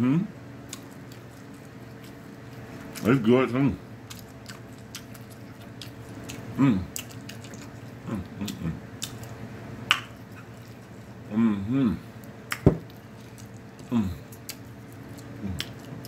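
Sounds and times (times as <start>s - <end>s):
chewing and lip-smacking: 0.6s - 3.3s, 4.0s - 11.2s, 12.2s - 16.0s
wet mouth clicks: 12.5s - 13.6s
person humming: 13.9s - 14.3s.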